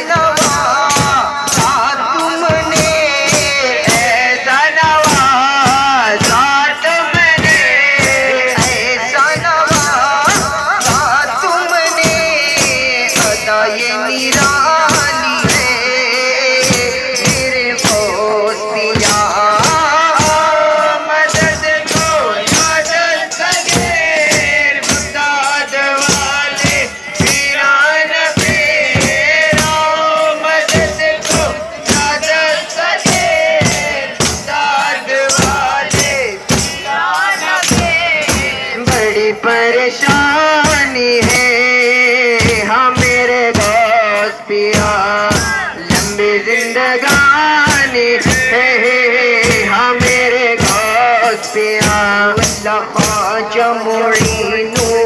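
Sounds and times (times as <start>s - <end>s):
hand-struck frame drums: 0.0s - 55.0s
men singing a chant: 0.0s - 55.0s.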